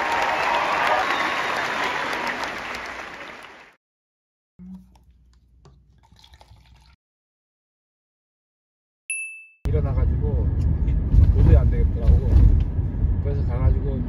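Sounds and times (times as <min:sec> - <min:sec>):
audience applauding: 0:00.0 - 0:03.8.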